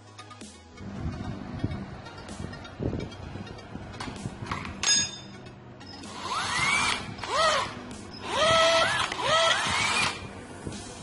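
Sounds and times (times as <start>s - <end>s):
electric drill motor whine: 5.9s - 10.4s.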